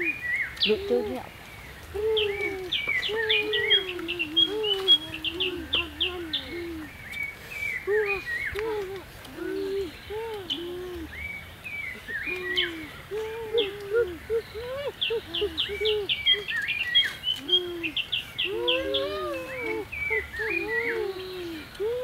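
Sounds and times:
short arching bird calls: 0:09.8 - 0:21.0.

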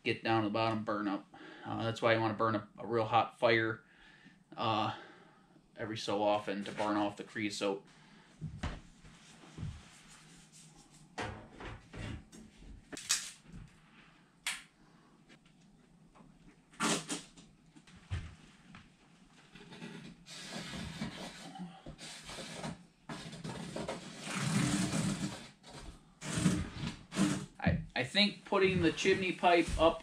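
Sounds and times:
rustling and scraping: 0:08.4 - 0:14.2, 0:28.5 - 0:30.0.

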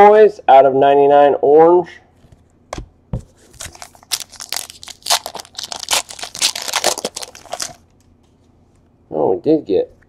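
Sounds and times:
foil wrapper crinkling and tearing: 0:03.5 - 0:07.8.

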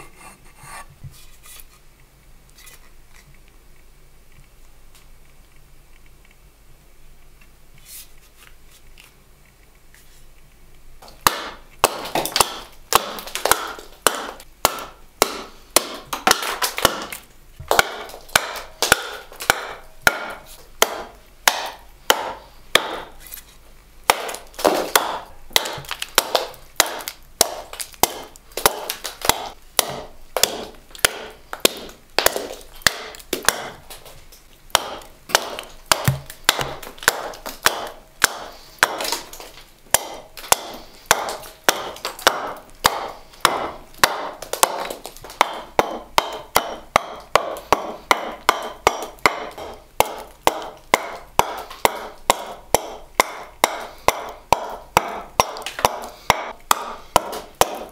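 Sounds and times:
axe chopping wood: 0:11.0 - 0:23.2, 0:24.1 - 0:57.9.

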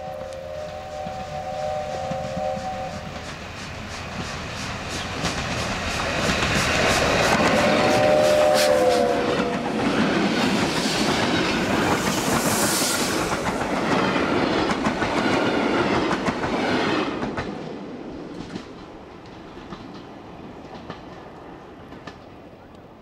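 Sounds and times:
train wheels clattering over rail joints: 0:02.4 - 0:08.7.

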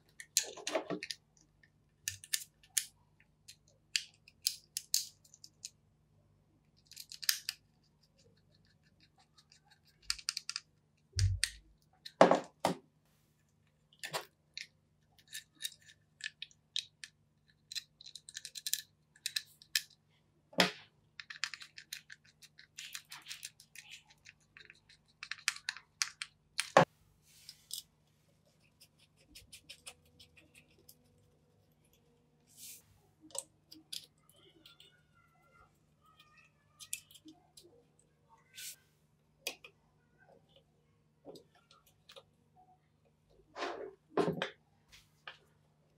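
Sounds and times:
small parts clicking and scraping: 0:00.0 - 0:05.8, 0:06.6 - 0:12.2, 0:13.6 - 0:20.0, 0:21.2 - 0:35.0, 0:36.1 - 0:37.8.

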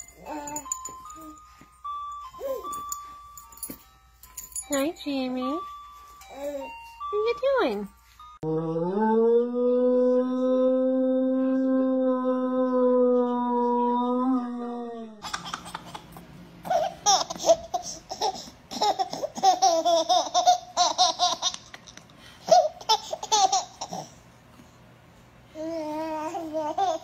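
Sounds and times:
low humming tone sliding down: 0:08.4 - 0:15.2
baby laughing and squealing: 0:15.2 - 0:21.8.

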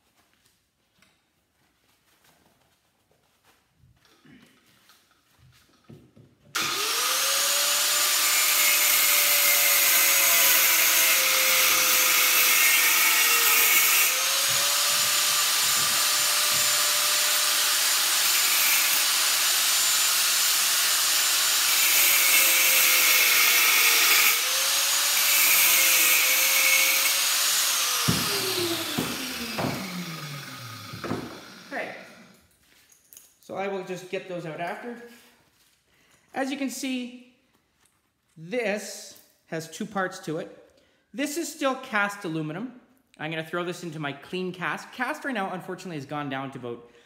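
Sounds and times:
angle grinder cutting: 0:06.6 - 0:32.4.

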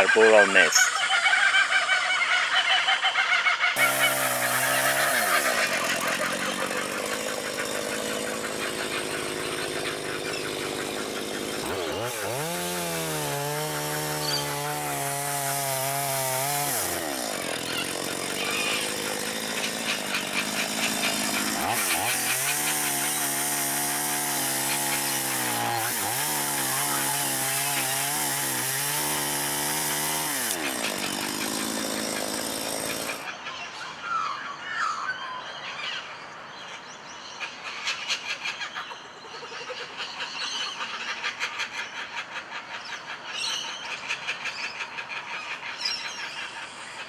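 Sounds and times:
chainsaw cutting wood: 0:03.8 - 0:33.3.

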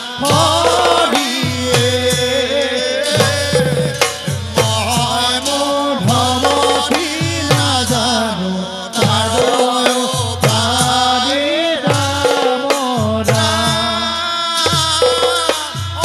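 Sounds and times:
drum with sliding low strokes: 0:00.0 - 0:08.4
group devotional singing: 0:00.0 - 0:16.0
hand cymbals: 0:00.0 - 0:16.0.

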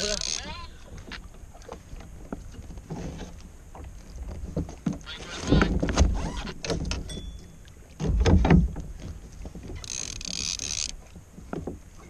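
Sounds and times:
water noise: 0:00.0 - 0:12.0
wind: 0:00.0 - 0:12.0
low thumps on kayak: 0:08.0 - 0:09.8.

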